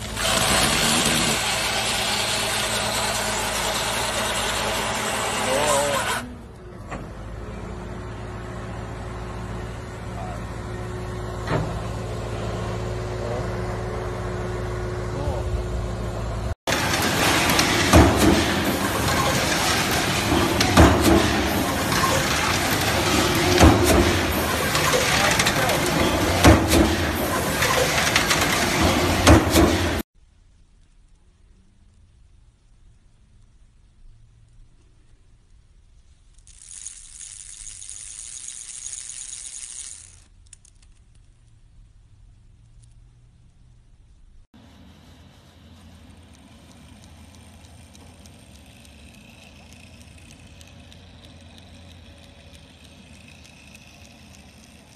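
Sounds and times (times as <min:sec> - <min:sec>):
machine thumping: 0:16.7 - 0:30.0
chain rattling over sprockets: 0:36.1 - 0:41.5, 0:46.8 - 0:54.9.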